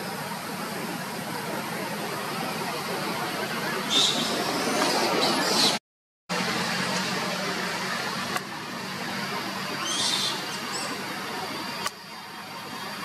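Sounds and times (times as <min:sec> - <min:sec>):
outdoor background hiss: 0:00.0 - 0:05.6, 0:06.3 - 0:13.0.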